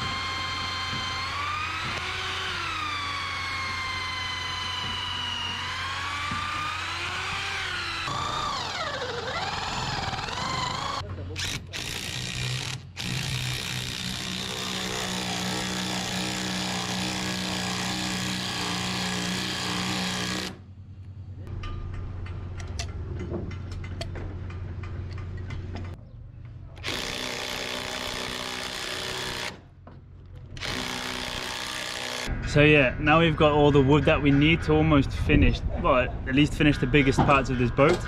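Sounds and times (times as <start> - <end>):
woodworking power tool running: 0.0 - 11.0, 11.8 - 20.6.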